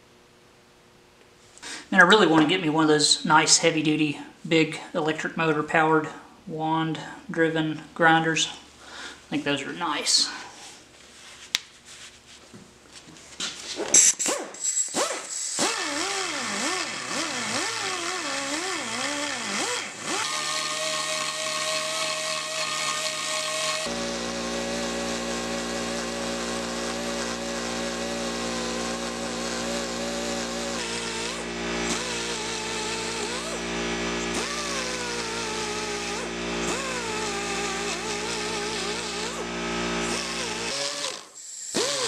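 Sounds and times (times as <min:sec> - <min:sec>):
die grinder whining: 0:13.9 - 0:42.0.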